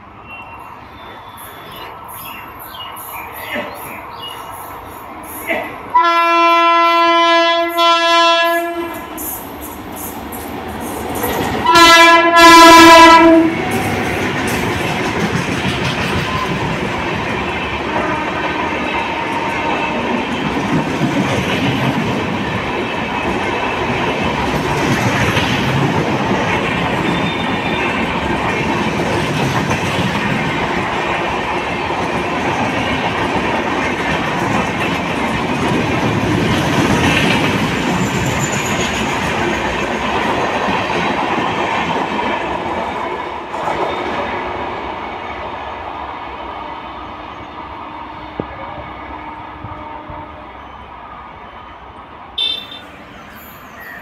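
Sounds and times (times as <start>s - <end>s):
train wheels rolling on rails: 0.0s - 51.0s, 51.8s - 54.0s
train clattering over track: 2.6s - 45.2s.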